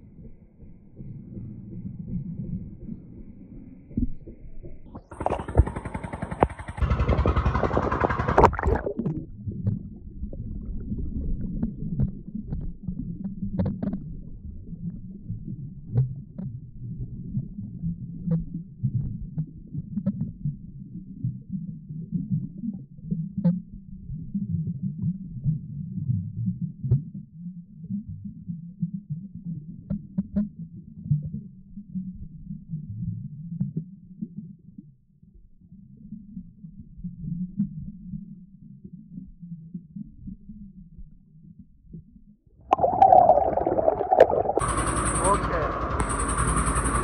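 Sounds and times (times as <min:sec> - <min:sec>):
low underwater rumble: 0:00.0 - 0:26.8, 0:36.5 - 0:46.4
muffled underwater rushing: 0:05.0 - 0:15.8, 0:42.7 - 0:47.0.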